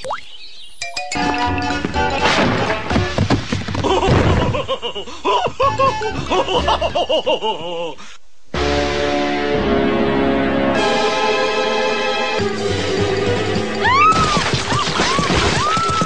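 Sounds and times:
background music: 0:00.8 - 0:03.3, 0:05.6 - 0:07.3, 0:08.5 - 0:16.0
cartoon character laughing: 0:03.8 - 0:08.0.

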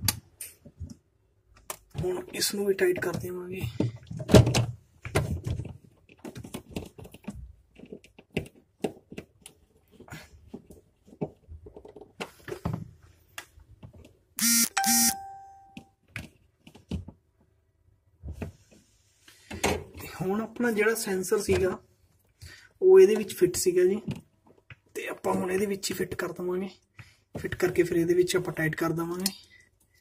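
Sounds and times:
loud electronic beeps: 0:14.4 - 0:15.2.

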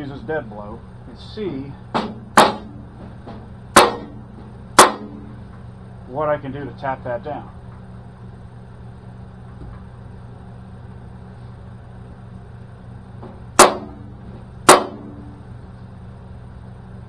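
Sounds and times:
low hum: 0:00.0 - 0:17.0
hammer striking steel panel: 0:01.9 - 0:05.3, 0:13.6 - 0:15.3.

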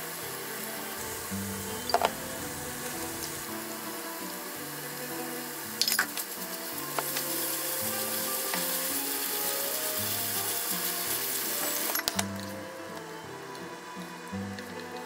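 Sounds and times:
chicken sizzling in a frying pan: 0:00.0 - 0:11.9.

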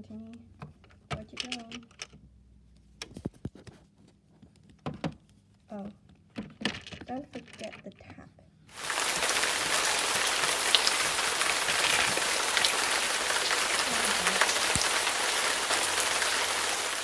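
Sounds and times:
steady loud hiss: 0:08.7 - 0:17.0.

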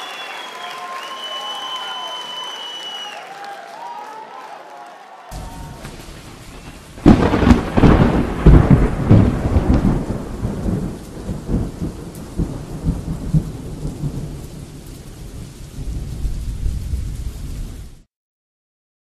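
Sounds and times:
steady rain: 0:05.3 - 0:18.1
thunderclap rolling into rumble: 0:05.4 - 0:18.1.

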